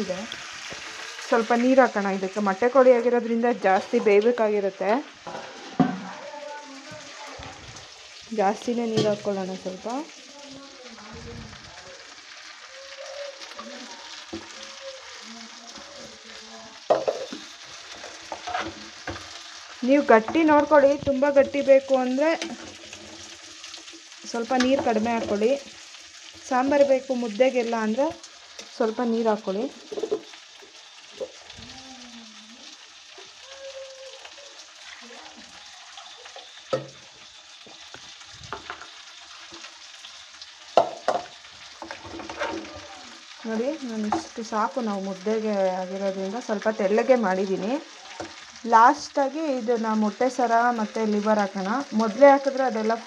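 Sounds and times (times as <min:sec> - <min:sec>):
curry sizzling in a pot: 0:00.0 - 0:53.0
ladle scraping a pot: 0:05.2 - 0:06.1, 0:17.0 - 0:19.4, 0:41.8 - 0:42.7.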